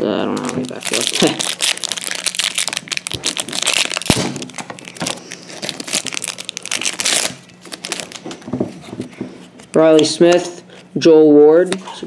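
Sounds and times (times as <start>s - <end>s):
wrapper crinkling and tearing: 0.3s - 8.4s.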